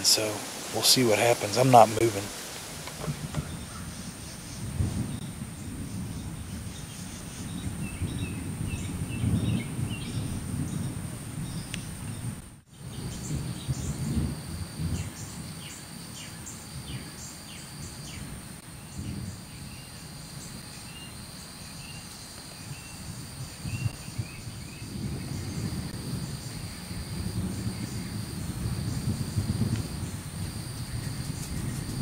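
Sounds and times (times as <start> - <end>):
birds chirping: 0.0 - 12.3
insects trilling: 0.0 - 32.0
wind rumbling on microphone: 0.0 - 32.0.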